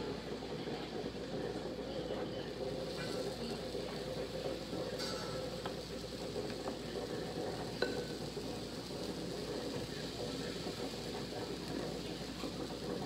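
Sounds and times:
batter sizzling on a griddle: 0:00.0 - 0:13.0.

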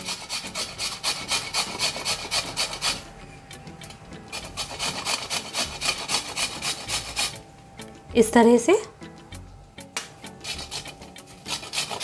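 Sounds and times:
gourd grating on metal grater: 0:00.0 - 0:07.4, 0:10.3 - 0:12.0.

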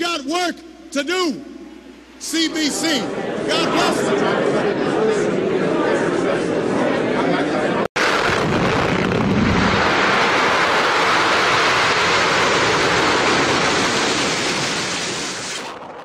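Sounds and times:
rushing noise sound effect: 0:08.0 - 0:16.0.

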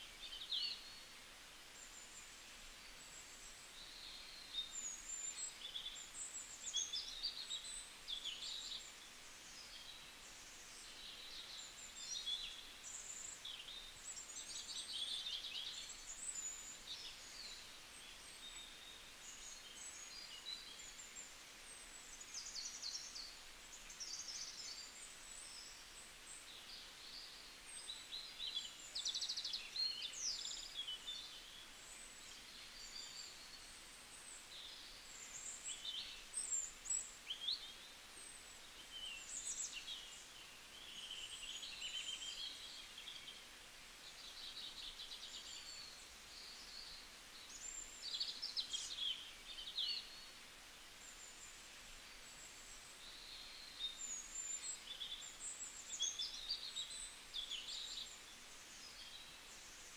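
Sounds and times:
background hiss: 0:00.0 - 0:59.9
small birds chirping and trilling: 0:00.0 - 0:59.9.

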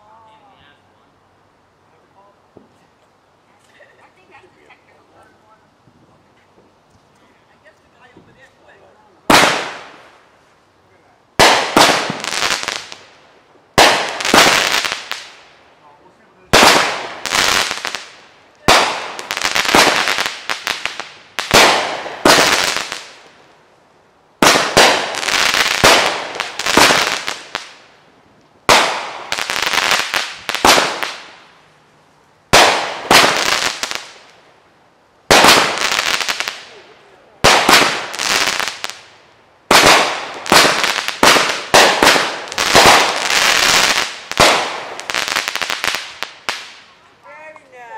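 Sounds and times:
fireworks bangs and crackling: 0:07.6 - 0:10.4, 0:11.3 - 0:23.6, 0:24.3 - 0:31.6, 0:32.5 - 0:34.5, 0:35.2 - 0:47.0.

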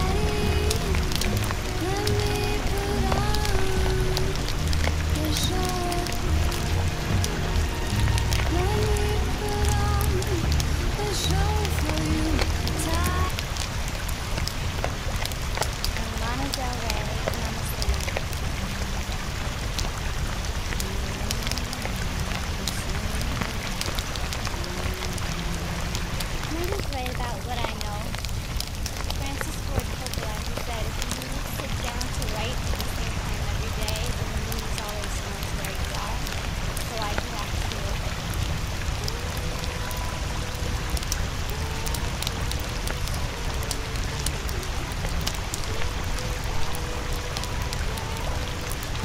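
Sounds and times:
rain-like hiss with crackles: 0:00.0 - 0:49.0.

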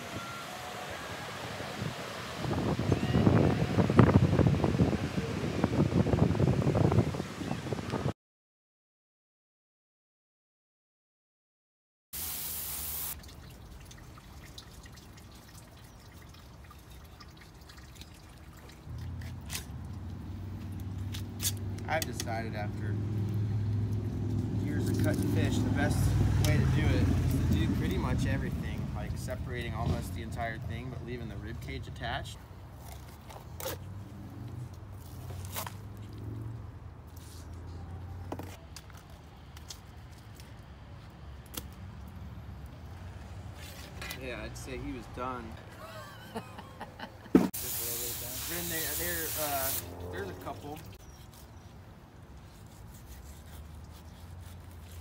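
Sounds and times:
knife cutting through fish scales: 0:51.0 - 0:51.7, 0:52.4 - 0:55.0.

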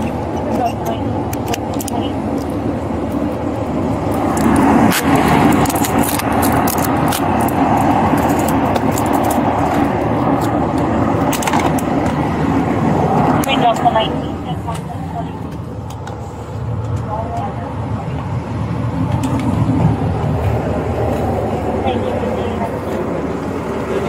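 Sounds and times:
vehicle noise: 0:00.0 - 0:24.0.

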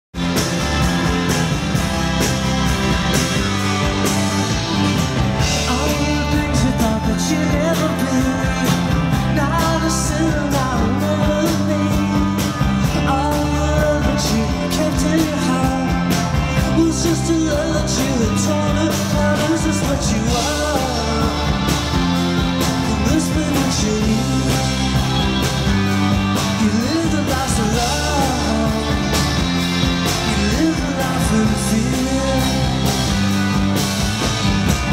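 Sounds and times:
rock band playing live: 0:00.1 - 0:34.9
man singing: 0:05.4 - 0:21.9, 0:22.6 - 0:25.3, 0:26.3 - 0:33.2.

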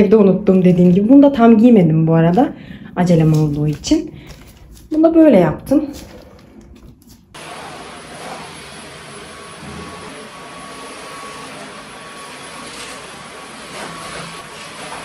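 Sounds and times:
vacuum cleaner running: 0:07.4 - 0:15.0.

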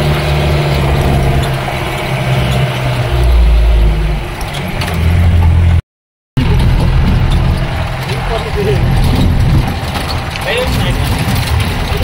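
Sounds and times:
jeep engine running: 0:00.0 - 0:05.8, 0:06.4 - 0:12.0.

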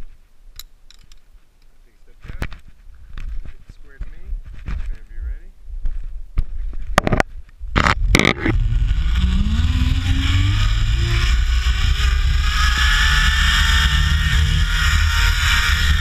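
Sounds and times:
wind rumble on microphone: 0:02.1 - 0:16.0
pulley wheels whining on cable: 0:07.8 - 0:16.0.

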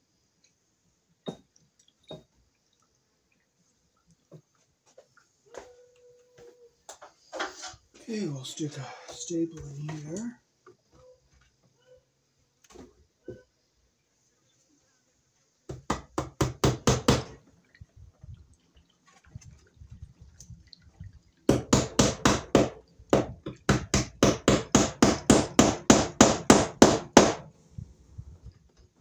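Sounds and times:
hammer driving staple into wood: 0:21.5 - 0:27.5.

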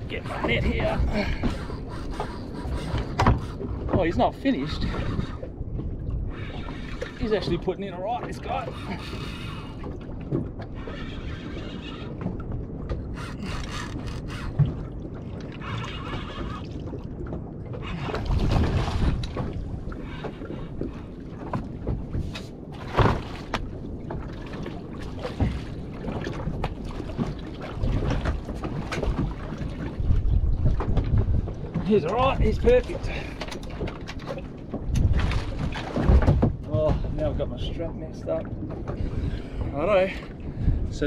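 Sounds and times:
water noise aboard a boat: 0:00.0 - 0:41.0
wind: 0:00.0 - 0:41.0
fishing reel winding: 0:13.2 - 0:14.6.

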